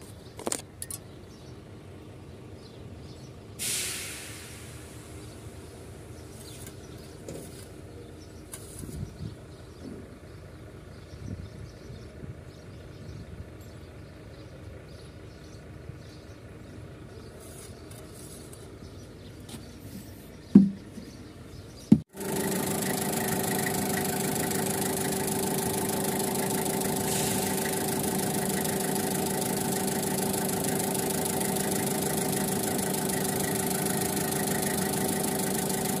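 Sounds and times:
forklift engine idling: 9.3 - 36.0
short knocks: 20.5 - 21.2.

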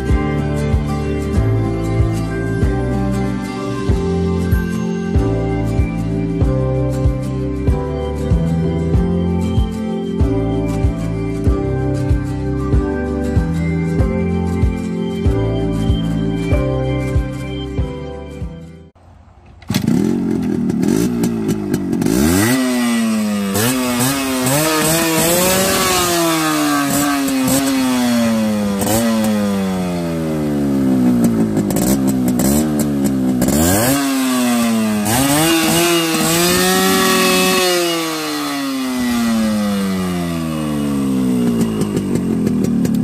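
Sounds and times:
two-stroke engine revving: 19.6 - 43.0.

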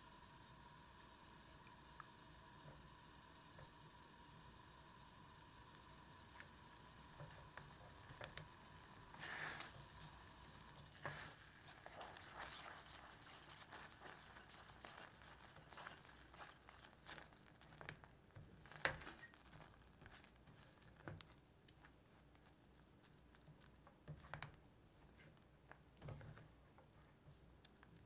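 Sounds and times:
spatula scraping a saucepan: 9.1 - 17.2.

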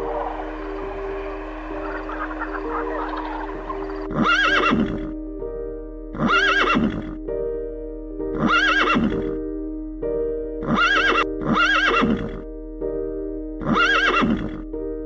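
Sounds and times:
background music: 0.0 - 15.0
horse whinnying: 1.9 - 5.1, 6.2 - 7.2, 8.4 - 9.2, 10.6 - 12.4, 13.6 - 14.6.

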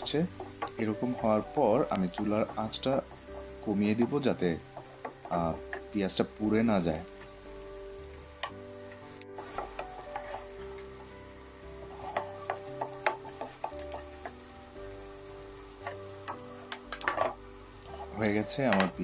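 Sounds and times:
onions sizzling: 0.0 - 19.0
soft background music: 0.0 - 19.0
spatula scraping frying pan: 9.0 - 11.1, 11.7 - 18.9.

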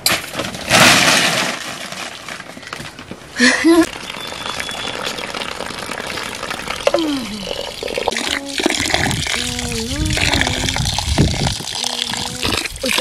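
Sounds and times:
water pouring into metal pan: 3.9 - 13.0.

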